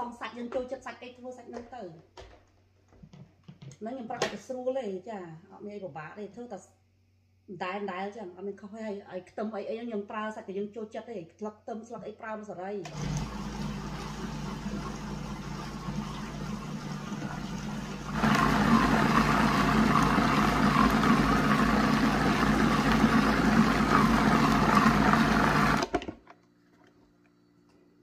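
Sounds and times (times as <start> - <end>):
food processor motor whirring: 12.9 - 26.2.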